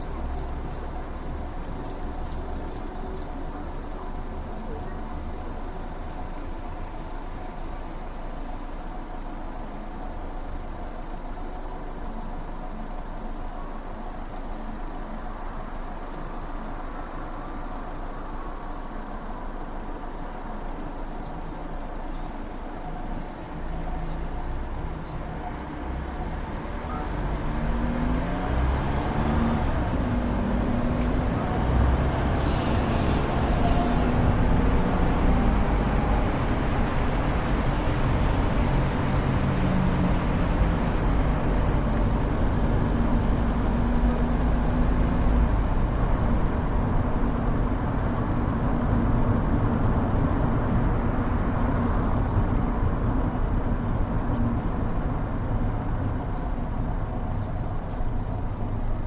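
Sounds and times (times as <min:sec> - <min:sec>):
city traffic from moving car: 0:00.0 - 0:59.0
tyres and engines rushing: 0:00.0 - 0:59.0
short high-pitched squeals: 0:32.4 - 0:34.4, 0:44.3 - 0:45.8.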